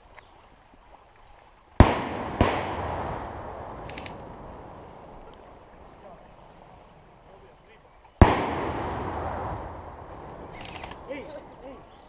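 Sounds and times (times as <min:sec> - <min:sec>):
loud pyrotechnic blasts: 0:01.8 - 0:05.3, 0:08.2 - 0:11.9
rolling echo: 0:01.8 - 0:07.5, 0:08.2 - 0:12.0.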